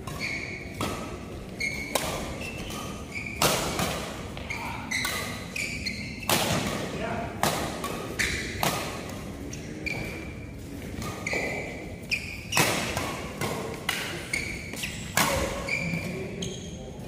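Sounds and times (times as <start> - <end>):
racket striking shuttlecock: 0.0 - 9.2, 11.0 - 15.7
shoes squeaking on court floor: 0.0 - 17.0.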